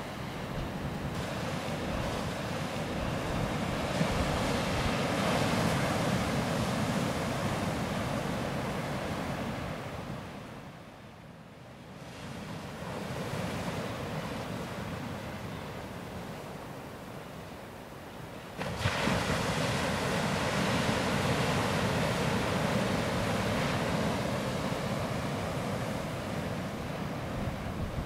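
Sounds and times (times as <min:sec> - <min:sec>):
sea surf breaking on beach: 0:00.0 - 0:10.8, 0:18.3 - 0:28.0.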